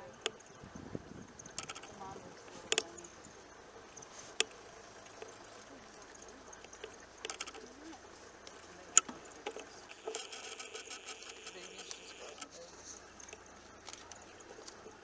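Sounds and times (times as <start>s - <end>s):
small clicks: 1.4s - 2.0s, 6.6s - 7.7s, 8.4s - 12.6s
camera click: 9.0s - 12.5s
zoom motor whirring: 9.9s - 12.4s.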